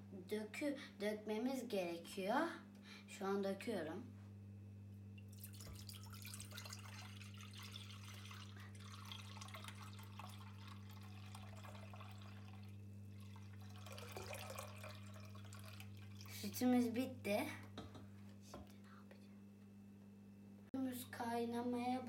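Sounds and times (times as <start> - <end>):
steady low hum: 0.0 - 22.0
milk pouring into a pot: 5.2 - 16.4.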